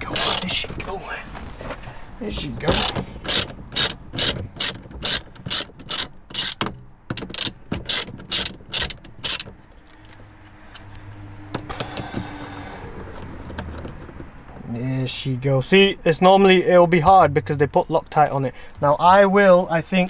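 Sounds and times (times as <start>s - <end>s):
hand ratchet clicking: 0.0s - 0.6s, 2.7s - 9.6s.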